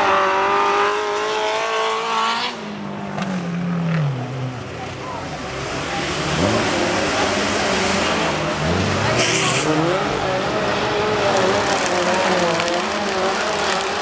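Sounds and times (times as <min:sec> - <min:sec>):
race car engines revving: 0:00.0 - 0:14.0.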